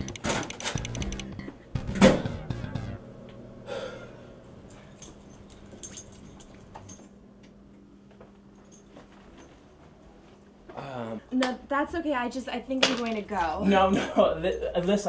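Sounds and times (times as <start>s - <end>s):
low steady hum: 0.0s - 8.9s
person breathing: 3.6s - 4.4s
man gasping: 3.7s - 4.4s.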